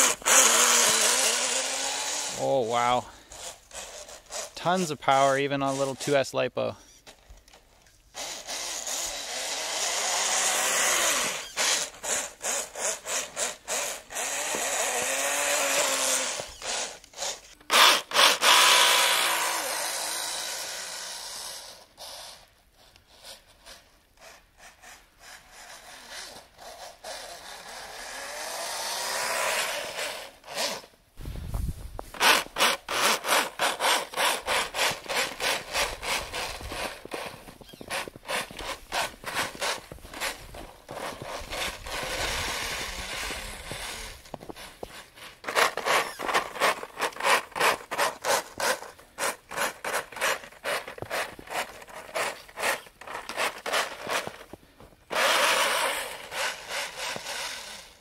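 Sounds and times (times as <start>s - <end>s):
electric motor whining: 0.0s - 2.4s, 8.2s - 22.2s, 32.1s - 48.9s, 55.1s - 58.0s
crunching strokes in snow: 25.2s - 58.0s.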